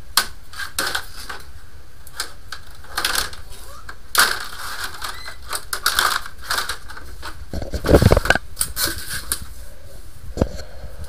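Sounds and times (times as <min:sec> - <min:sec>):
rustling and clattering of gear: 0:02.2 - 0:09.5.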